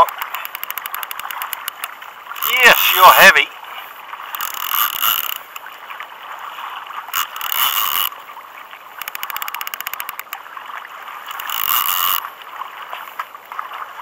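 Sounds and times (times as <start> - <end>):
fishing reel ratcheting: 0.0 - 3.4, 4.3 - 5.7, 7.1 - 8.1, 9.0 - 10.4, 11.2 - 12.3
water sloshing: 0.0 - 14.0.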